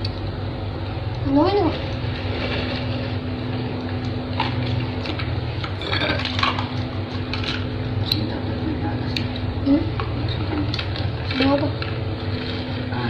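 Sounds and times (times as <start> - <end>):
steady low hum: 0.0 - 13.0
plates and spoons clinking: 4.4 - 8.3.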